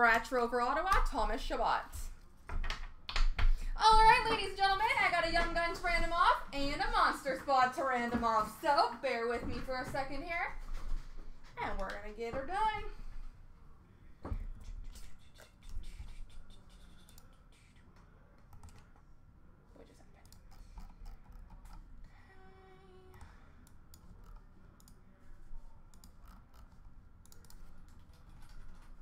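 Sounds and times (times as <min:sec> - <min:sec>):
keyboard typing: 0:15.0 - 0:17.8, 0:18.4 - 0:19.0, 0:25.9 - 0:29.0
mouse clicking: 0:25.9 - 0:28.8.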